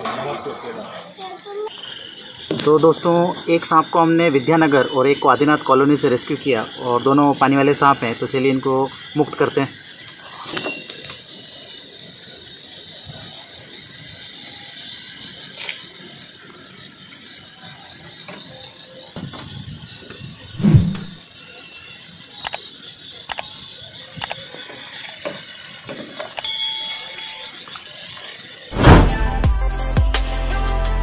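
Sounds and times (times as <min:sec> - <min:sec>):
crickets chirping: 0:00.0 - 0:30.0
dull thump: 0:20.6 - 0:21.2, 0:28.8 - 0:29.4.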